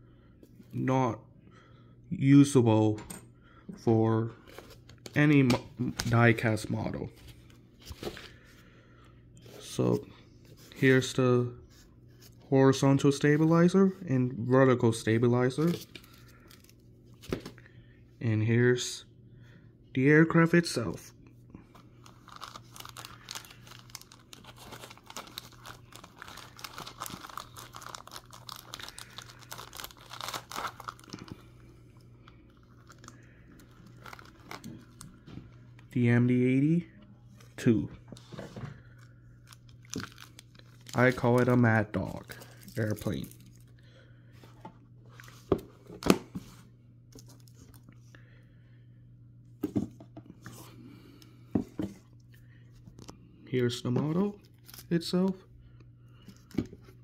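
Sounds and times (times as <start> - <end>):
steady low hum: 0.0 - 57.0
plastic wrapping crinkling: 22.0 - 31.4, 32.5 - 35.3, 39.0 - 43.7.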